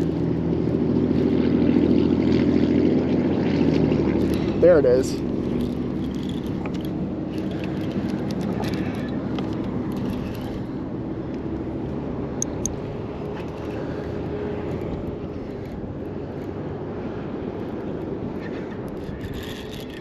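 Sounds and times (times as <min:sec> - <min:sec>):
wind buffeting microphone: 0:00.0 - 0:20.0
small clicks: 0:05.4 - 0:10.7.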